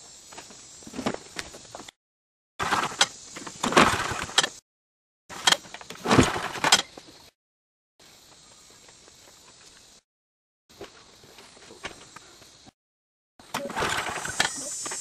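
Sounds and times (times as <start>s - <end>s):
lawn mower recoil starter pulls: 2.6s - 4.6s, 13.4s - 15.0s.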